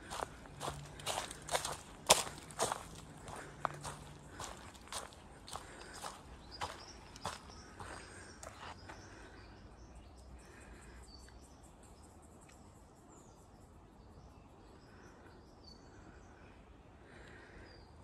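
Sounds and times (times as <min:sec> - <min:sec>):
footsteps on track: 0:00.0 - 0:09.0.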